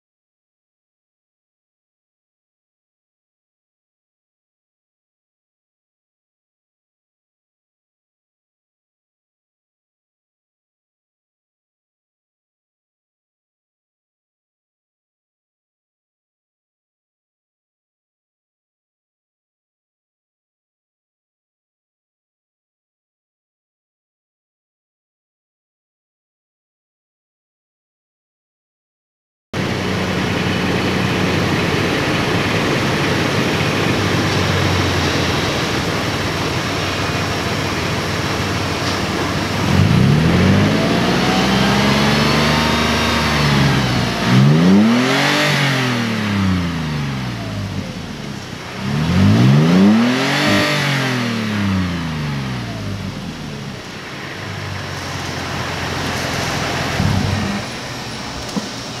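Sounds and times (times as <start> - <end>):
car engine starting and revving: 29.6 - 59.0.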